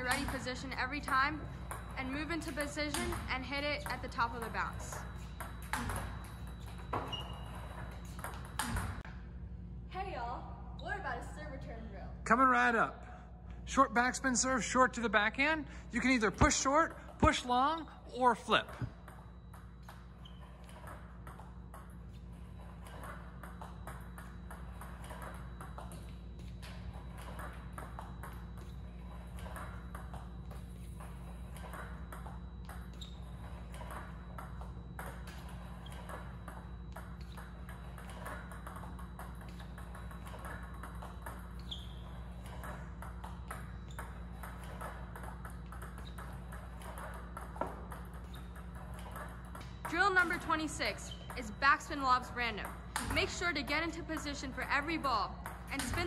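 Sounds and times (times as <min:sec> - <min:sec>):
table tennis balls clicking: 0:00.0 - 0:09.1, 0:18.5 - 0:56.0
ball hitting paddle: 0:05.1 - 0:09.1, 0:33.7 - 0:50.3.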